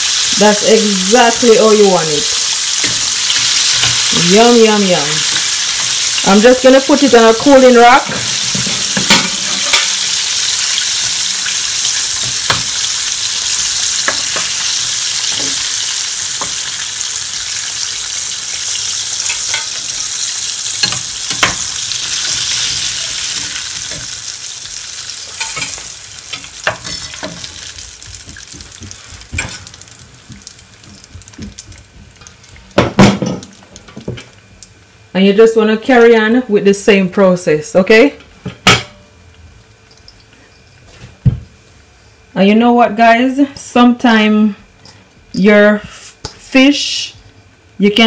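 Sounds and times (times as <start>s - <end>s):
fish sizzling in hot oil: 0.0s - 34.8s.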